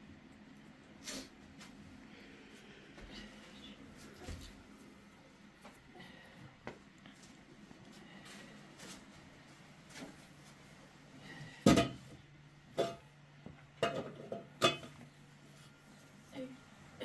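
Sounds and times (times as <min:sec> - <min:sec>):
metal pot clanking on concrete: 0:13.8 - 0:15.0.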